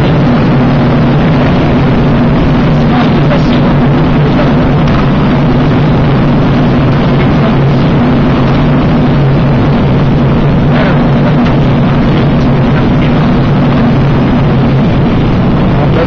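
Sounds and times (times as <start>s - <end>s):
air rushing past cockpit: 0.0s - 16.0s
constant low hum: 0.0s - 16.0s.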